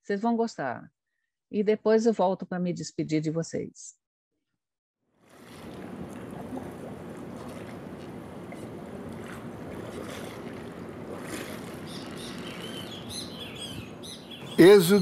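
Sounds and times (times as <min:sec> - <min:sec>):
water: 0:05.1 - 0:15.0
wind: 0:05.2 - 0:15.0.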